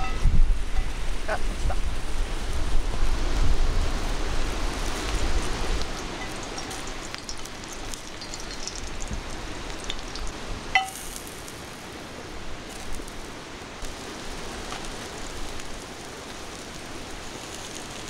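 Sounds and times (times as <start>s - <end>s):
oil sizzling in frying pan: 2.0s - 18.0s
utensil clinking on pan: 6.0s - 8.8s, 10.8s - 11.2s.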